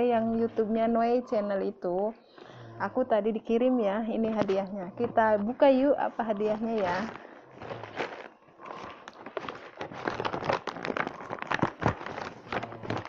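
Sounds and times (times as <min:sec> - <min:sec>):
paper bag rustling and crinkling: 0:06.4 - 0:13.0.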